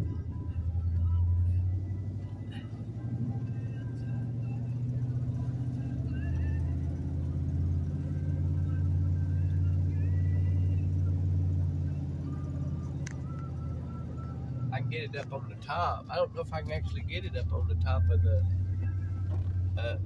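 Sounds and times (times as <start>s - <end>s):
car engine and road noise: 0.0s - 20.0s.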